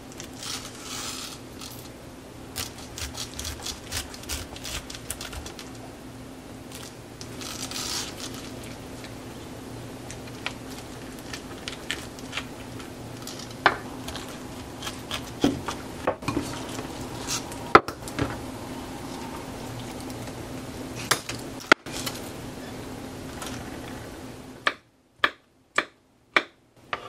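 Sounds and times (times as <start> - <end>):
low steady hum: 0.0 - 27.0
knife and spoon scraping fruit: 0.2 - 5.7, 6.7 - 9.1, 10.2 - 17.6.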